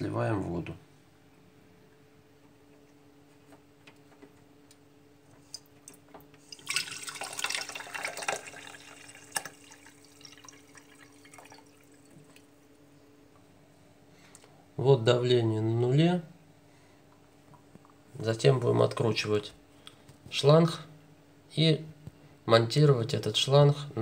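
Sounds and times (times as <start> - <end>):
faint steady hum: 0.0 - 24.0
water running into glass jar: 6.4 - 12.4.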